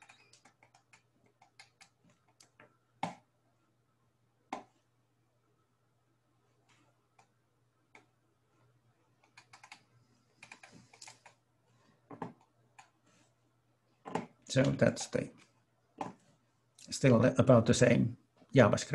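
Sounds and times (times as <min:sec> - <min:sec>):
computer keys tapping: 0:00.0 - 0:03.2, 0:09.2 - 0:11.4.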